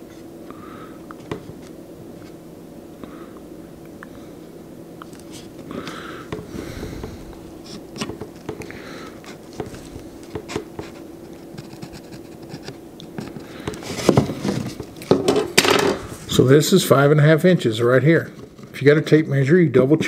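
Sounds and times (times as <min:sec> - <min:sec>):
low steady hum: 0:00.0 - 0:20.0
pencil scratching on wood: 0:10.3 - 0:13.4.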